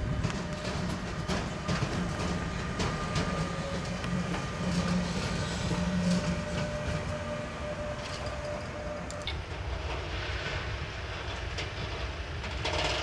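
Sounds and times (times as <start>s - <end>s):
locomotive electric hum: 0.0s - 13.0s
wheels clicking over rail joints: 0.0s - 13.0s.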